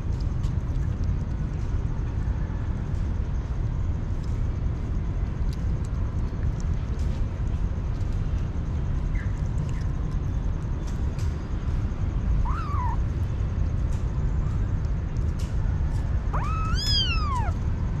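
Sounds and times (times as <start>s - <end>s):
steady low rumble: 0.0s - 18.0s
kitten meowing: 12.4s - 13.0s, 16.3s - 17.6s.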